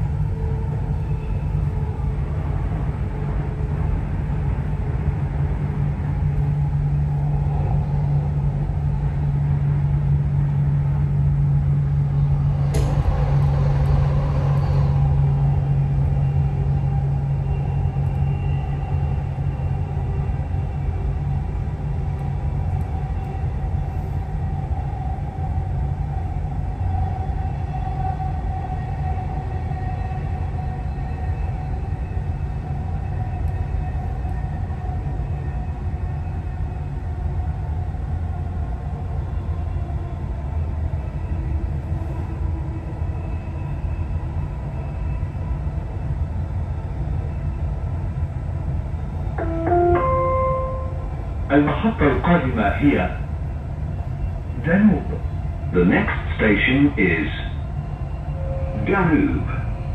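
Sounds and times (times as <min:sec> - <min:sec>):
train rumbling inside carriage: 0:00.0 - 0:59.9.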